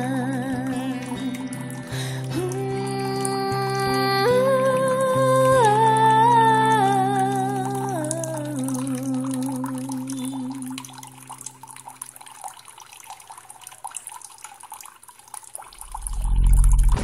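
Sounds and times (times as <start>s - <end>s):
water trickling and dripping: 0.0s - 17.0s
loud low rumble: 15.8s - 17.0s.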